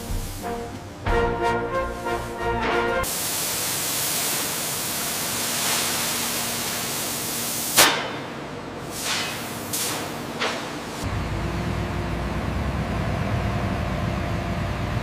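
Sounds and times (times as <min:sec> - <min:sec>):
plasma cutter hissing: 0:00.0 - 0:00.6, 0:03.0 - 0:08.2, 0:08.8 - 0:11.0
sharp crack: 0:07.7 - 0:08.3.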